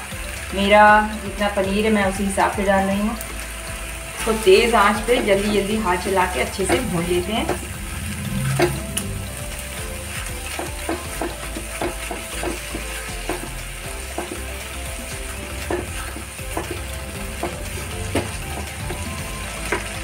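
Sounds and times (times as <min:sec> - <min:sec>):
masala sizzling in oil: 0:00.0 - 0:20.0
spatula scraping pan: 0:04.2 - 0:20.0.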